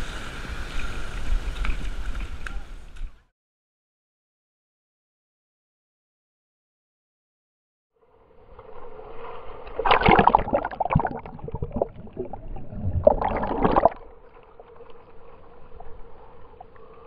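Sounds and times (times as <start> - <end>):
surf sloshing and gurgling: 8.3 - 17.0.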